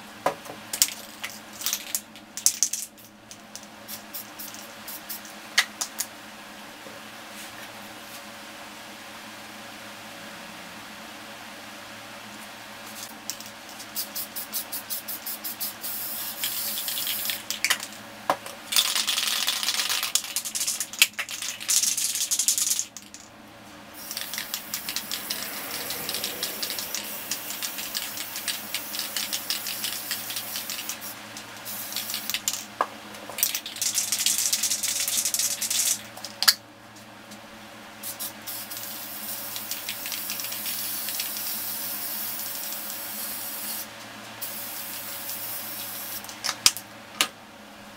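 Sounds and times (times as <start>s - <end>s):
spray can rattling: 0.8s - 6.0s, 13.0s - 18.0s, 18.7s - 23.3s, 24.0s - 25.4s, 26.1s - 32.7s, 33.4s - 36.0s, 38.0s - 43.8s, 44.4s - 46.4s
spray paint hissing: 3.9s - 5.3s, 13.8s - 17.6s, 24.0s - 32.6s, 38.0s - 46.4s.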